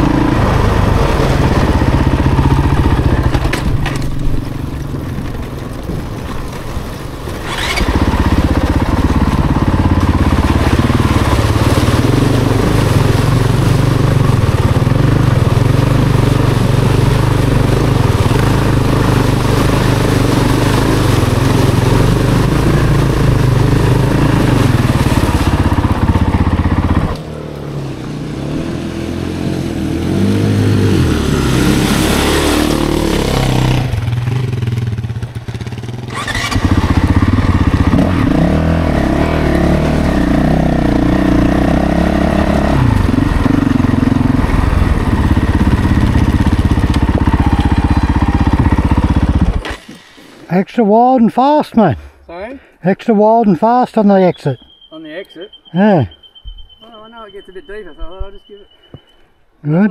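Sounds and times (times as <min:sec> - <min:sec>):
dirt bike engine revving: 0:00.0 - 0:03.8, 0:07.4 - 0:50.1.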